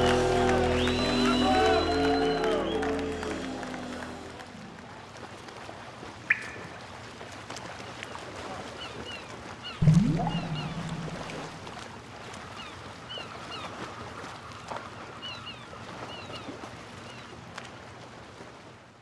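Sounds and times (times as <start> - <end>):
short high chirps: 9.8 - 11.6
low humming tone: 9.8 - 11.8.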